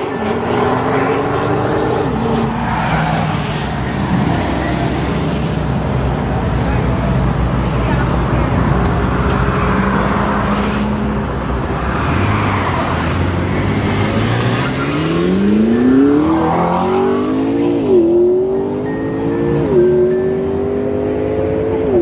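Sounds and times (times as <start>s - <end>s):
sports car accelerating hard: 11.9s - 22.0s.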